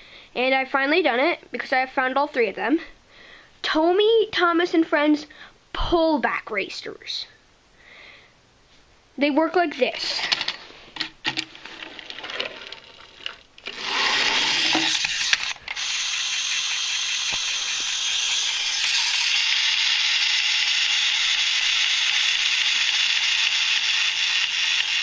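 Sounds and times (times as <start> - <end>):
toy pullback motor whirring: 11.3 - 25.0.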